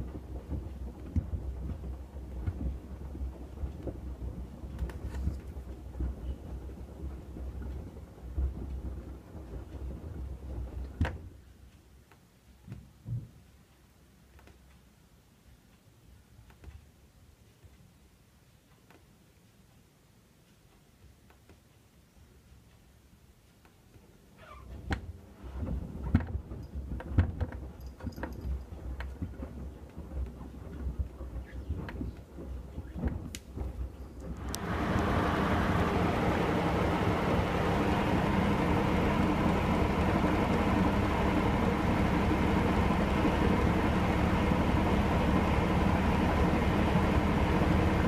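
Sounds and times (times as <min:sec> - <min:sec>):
washer drum churning rumble: 0:00.0 - 0:11.2, 0:24.7 - 0:48.0.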